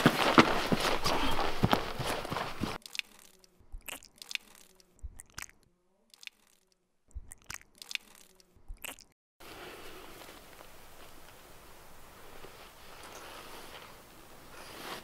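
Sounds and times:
footsteps crunching on dry grass: 0.0s - 2.8s.

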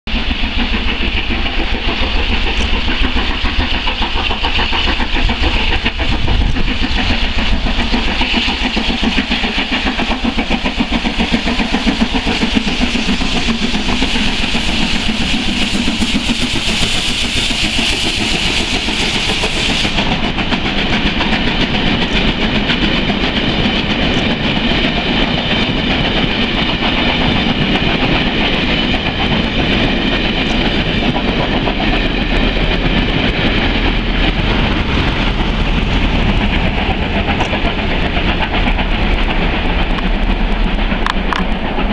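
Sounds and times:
steam locomotive passing: 0.1s - 41.9s.

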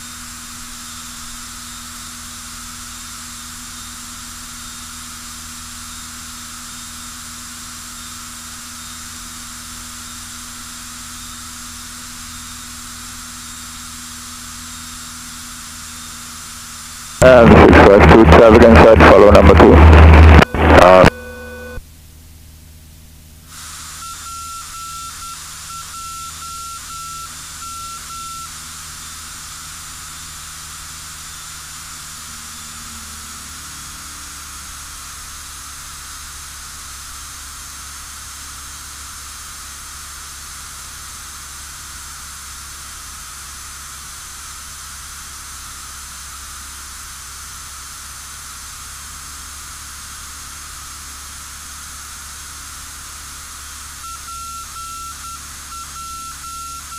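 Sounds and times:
low hum: 13.4s - 23.5s
radio hiss: 15.5s - 21.8s, 23.5s - 37.7s
high beeping tone: 20.2s - 21.8s, 54.0s - 56.9s.

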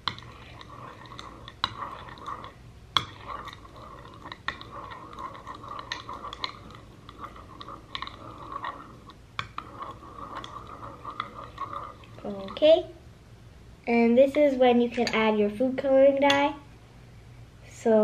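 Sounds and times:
spoon stirring sticky glue: 0.0s - 12.9s.

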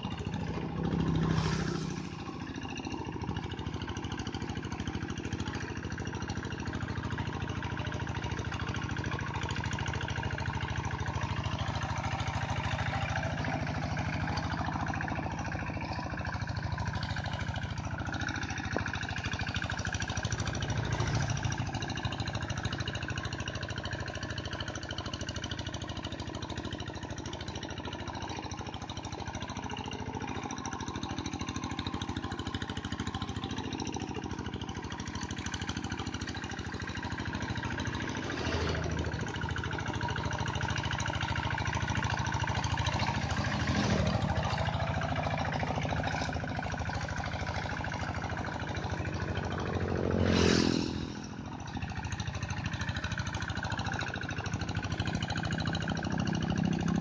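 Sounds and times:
diesel engine chugging under load: 0.0s - 57.0s.

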